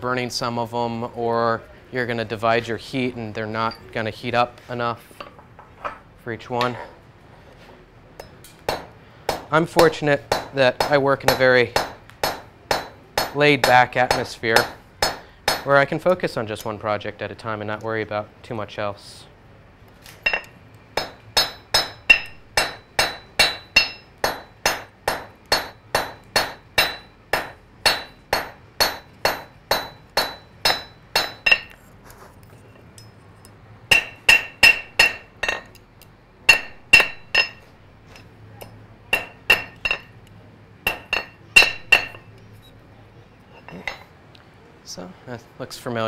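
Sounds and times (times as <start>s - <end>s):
hammer striking iron on anvil: 8.2s - 15.8s, 20.2s - 31.8s, 33.0s - 35.8s, 36.5s - 40.1s, 40.9s - 42.3s.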